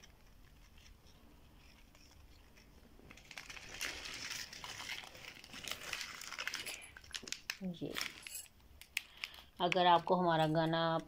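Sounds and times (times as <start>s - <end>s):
plastic wrappers crinkling: 0.0s - 11.0s.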